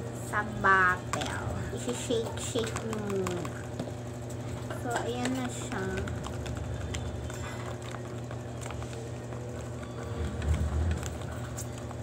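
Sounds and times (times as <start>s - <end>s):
steady low hum: 0.0s - 12.0s
plastic spoon stirring foam: 0.4s - 12.0s.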